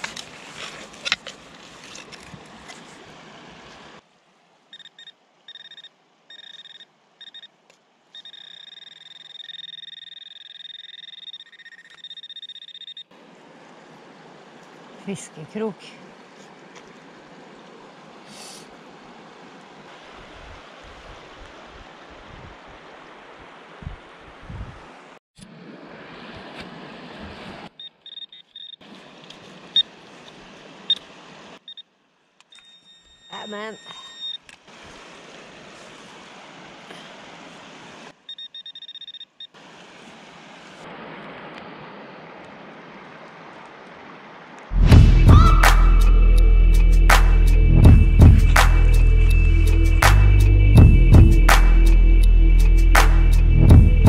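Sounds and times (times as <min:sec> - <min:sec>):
metal detector beeping: 0:04.7 - 0:07.5, 0:08.2 - 0:13.1, 0:27.8 - 0:28.8, 0:32.5 - 0:34.4, 0:38.3 - 0:39.5
wind and surf rushing: 0:13.1 - 0:27.8, 0:39.6 - 0:54.0.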